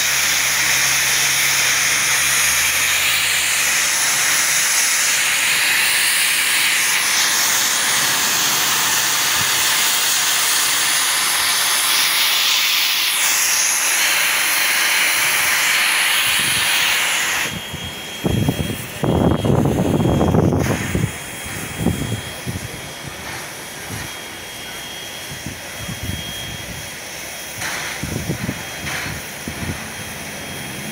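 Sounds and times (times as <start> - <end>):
steam locomotive hissing: 0.0 - 30.9
locomotive deep rumble: 27.5 - 30.9.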